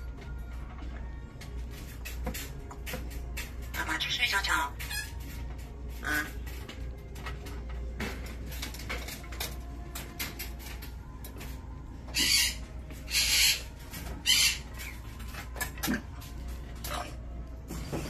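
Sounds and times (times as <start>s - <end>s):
parrot clicks and scratches: 1.4s - 17.0s
parrot harsh noisy calls: 12.1s - 15.0s.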